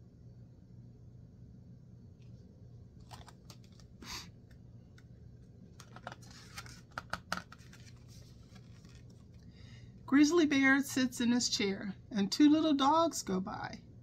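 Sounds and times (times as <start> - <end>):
light paper clicks and rustles: 3.0 - 5.2, 5.8 - 9.5.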